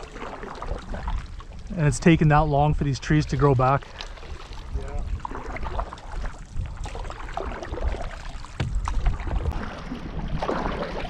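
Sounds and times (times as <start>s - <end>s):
paddle swishing through water: 0.0s - 11.0s
water lapping against hull: 0.0s - 11.0s
knock on canoe: 8.6s - 9.2s.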